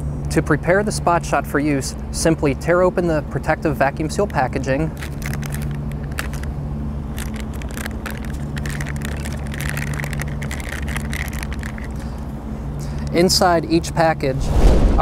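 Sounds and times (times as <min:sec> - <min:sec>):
steady low hum: 0:00.0 - 0:15.0
plastic packaging crinkling: 0:05.0 - 0:06.5, 0:07.1 - 0:12.0.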